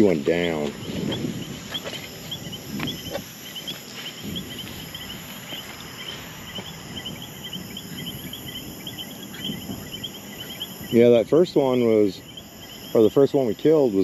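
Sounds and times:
rustling through grass: 0.0s - 10.6s
high-pitched insect drone: 0.0s - 14.0s
insects chirping: 0.0s - 14.0s.

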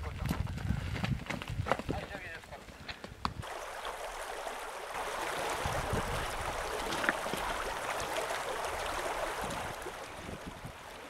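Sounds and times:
stream running over rocks: 3.3s - 11.0s.

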